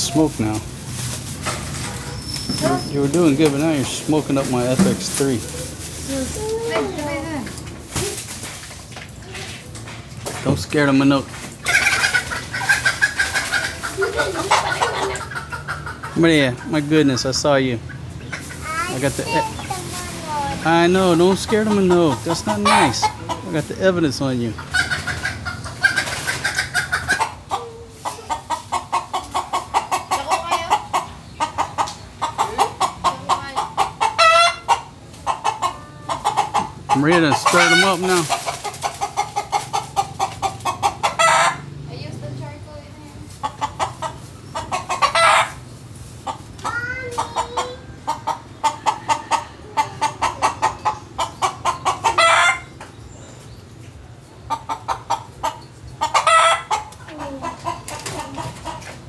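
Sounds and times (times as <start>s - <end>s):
chickens clucking agitatedly: 0.0s - 59.0s
chicken squawk: 11.6s - 16.8s, 21.0s - 23.4s, 24.6s - 41.7s, 43.4s - 45.6s, 46.2s - 52.8s, 54.5s - 58.9s.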